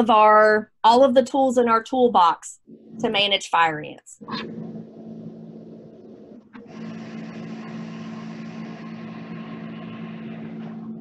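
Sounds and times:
machine hum with hiss: 4.2s - 11.0s.

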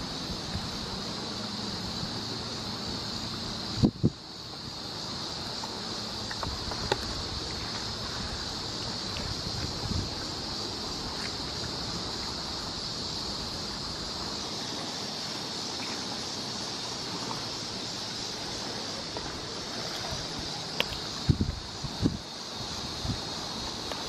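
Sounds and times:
wind rumbling on microphone: 0.0s - 1.2s, 3.5s - 4.7s, 6.4s - 15.0s, 18.4s - 24.0s
high-pitched hiss: 0.0s - 24.0s
faint ticks: 5.6s - 7.2s, 20.7s - 21.2s, 23.6s - 24.0s.

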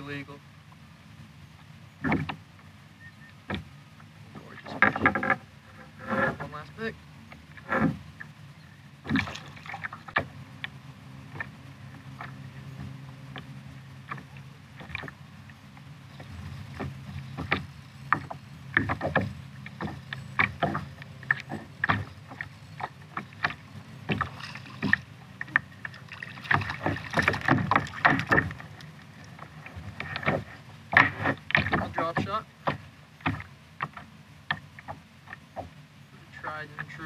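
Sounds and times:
water splashing against kayak hull: 3.4s - 37.0s.

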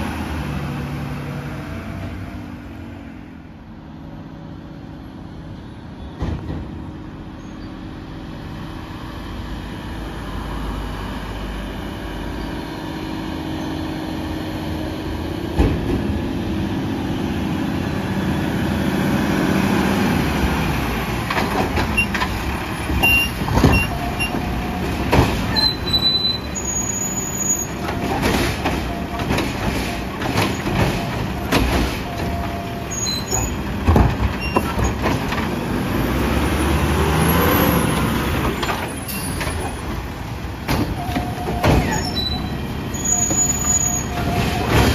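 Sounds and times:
clanks and knocks from truck body: 15.5s - 16.2s, 21.2s - 25.9s, 27.8s - 32.6s, 33.4s - 35.6s, 38.4s - 42.2s, 43.3s - 44.9s
high-pitched brake squeals: 25.5s - 27.8s, 32.0s - 33.6s, 41.0s - 44.9s.

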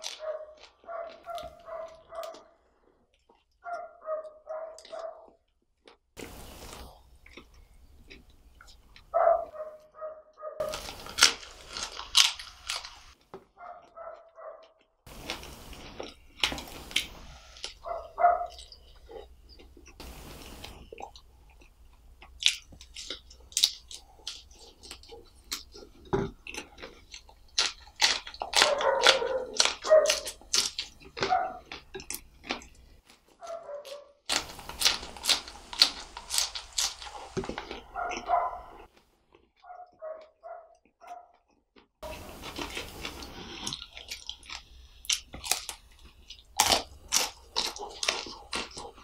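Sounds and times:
wet chewing clicks and smacks: 0.0s - 6.2s, 7.2s - 9.6s, 16.0s - 20.0s, 20.6s - 49.0s
loud crunchy bite: 10.6s - 13.2s, 19.9s - 33.0s, 33.8s - 39.5s, 42.0s - 49.0s.

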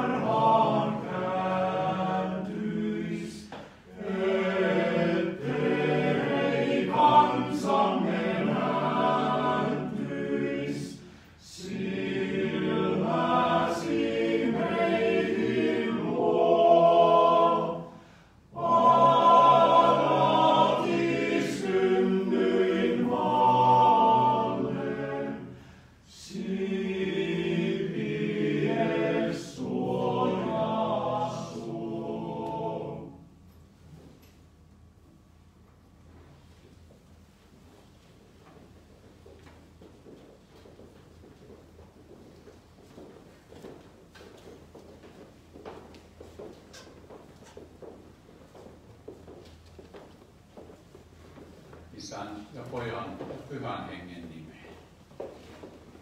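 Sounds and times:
male choir singing a cappella: 0.0s - 33.4s.

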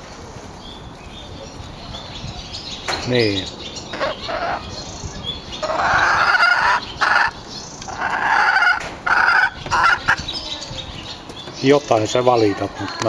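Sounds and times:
hen calling: 2.9s - 13.0s.

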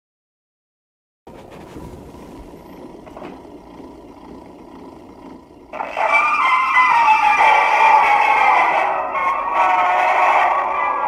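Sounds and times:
music from a record: 5.8s - 11.0s.

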